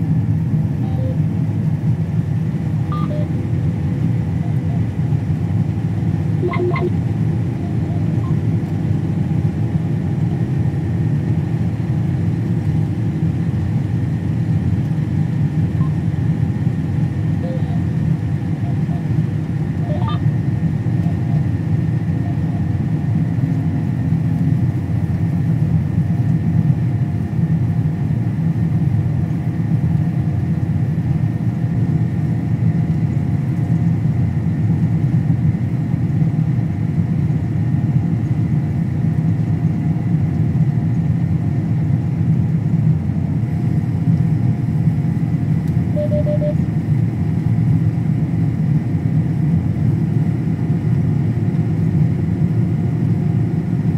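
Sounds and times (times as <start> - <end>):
faint steady whines: 0.0 - 53.9
machinery engine drone: 0.0 - 53.9
electronic beep: 0.8 - 1.2, 2.9 - 3.4, 6.4 - 7.0, 17.4 - 17.8, 19.9 - 20.2, 45.9 - 46.6.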